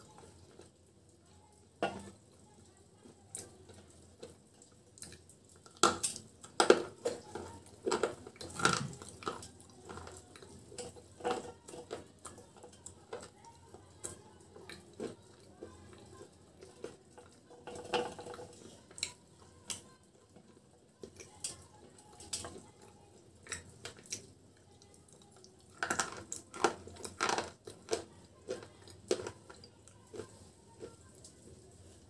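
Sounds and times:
crunching and chewing clay: 5.0s - 13.3s, 25.6s - 31.3s.

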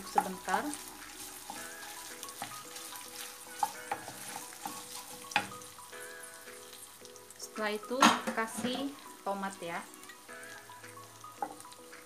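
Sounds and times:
wooden spoon knocking on pan: 0.0s - 0.6s, 1.4s - 5.6s, 8.0s - 9.0s, 11.4s - 11.7s
food sizzling in a frying pan: 0.0s - 12.0s
soft background music: 0.0s - 12.0s.

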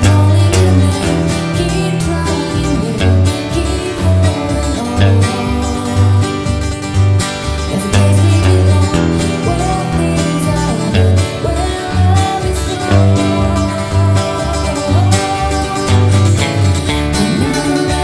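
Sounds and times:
acoustic guitar: 0.0s - 18.0s
woman singing: 0.0s - 18.0s.

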